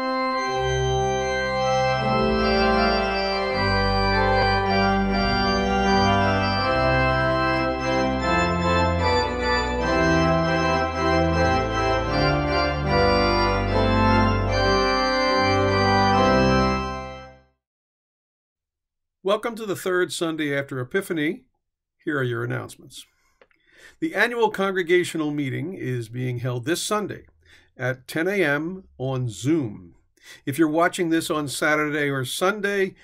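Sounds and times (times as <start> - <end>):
deep organ pedal bass notes: 0.0 - 17.4
organ chords: 0.0 - 17.5.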